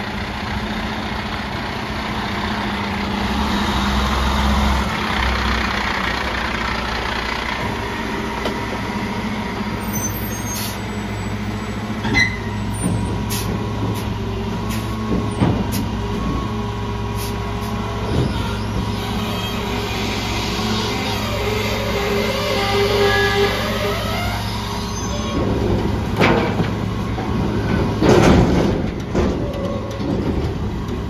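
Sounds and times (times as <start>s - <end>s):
diesel engine idling: 0.0s - 31.0s
metallic clanks and knocks: 14.8s - 16.4s, 25.2s - 31.0s.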